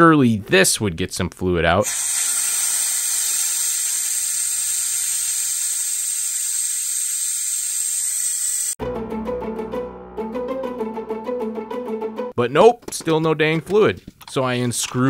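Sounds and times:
vacuum bleeder hissing: 0:01.8 - 0:08.8
plucked guitar music: 0:08.8 - 0:12.4.

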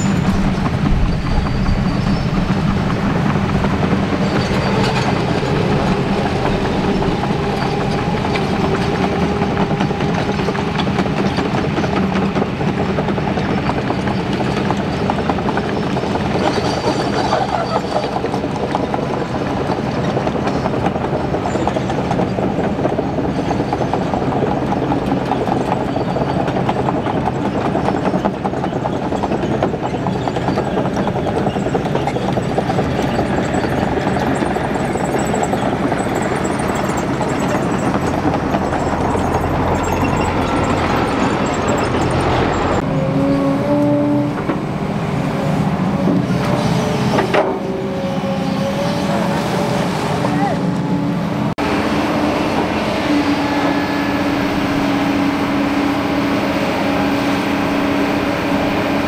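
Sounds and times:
diesel excavator engines running: 0:00.0 - 0:59.0.

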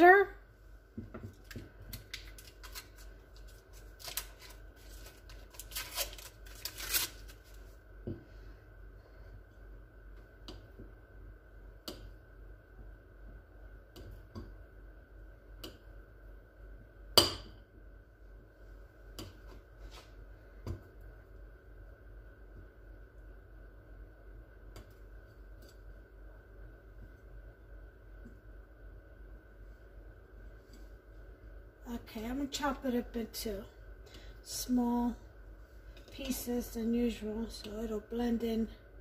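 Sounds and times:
paper wrapper crinkling: 0:02.0 - 0:07.7.

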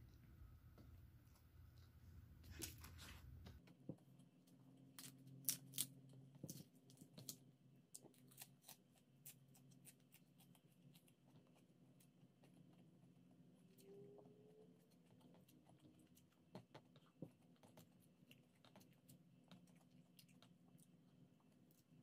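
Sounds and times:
leafy greens crunched and chewed: 0:04.8 - 0:12.7.

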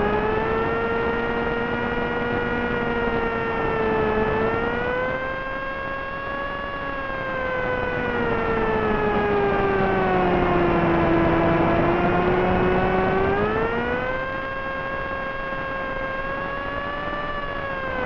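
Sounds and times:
electric motor whining: 0:07.6 - 0:14.1.

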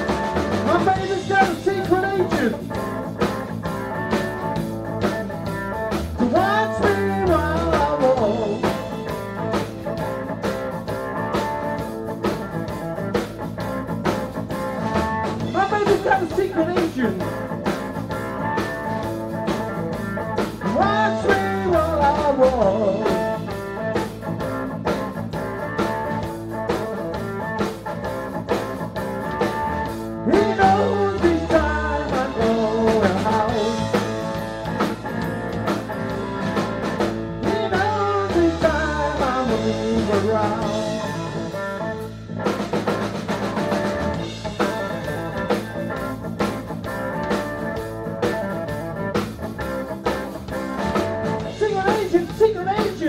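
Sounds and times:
drum kit: 0:00.0 - 0:53.0
electric guitar: 0:00.0 - 0:53.0
keyboards: 0:00.0 - 0:53.0.

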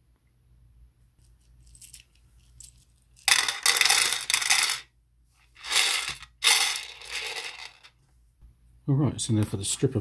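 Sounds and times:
plastic pieces clattering in cup: 0:01.6 - 0:04.9, 0:05.6 - 0:07.9.

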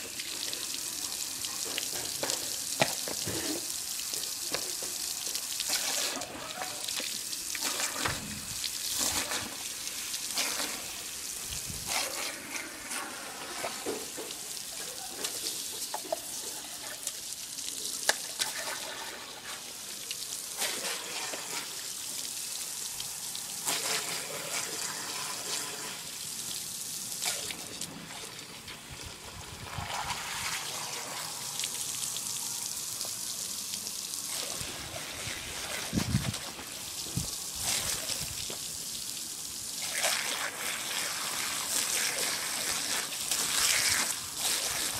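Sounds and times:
water splashing: 0:00.0 - 0:28.4, 0:29.6 - 0:44.9
hose spraying water: 0:00.0 - 0:44.9.

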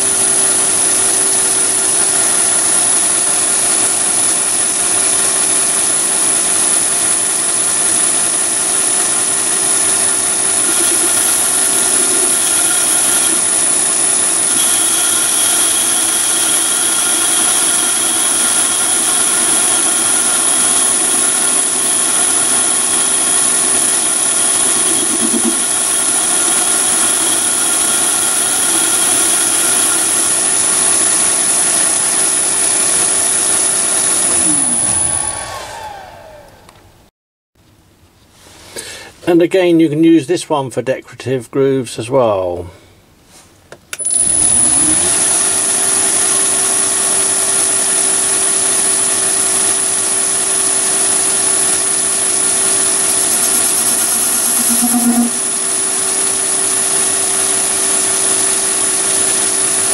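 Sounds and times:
lathe whine and gear hum: 0:00.0 - 0:37.0, 0:44.0 - 0:59.9
high tone: 0:09.9 - 0:30.6, 0:52.6 - 0:56.1.

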